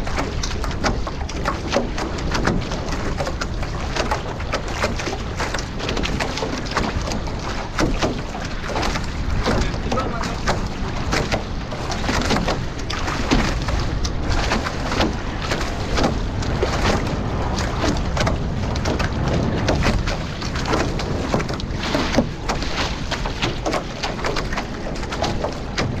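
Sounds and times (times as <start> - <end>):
rushing water: 0.0 - 26.0
water splashing against hulls: 0.0 - 26.0
wind noise: 0.0 - 26.0.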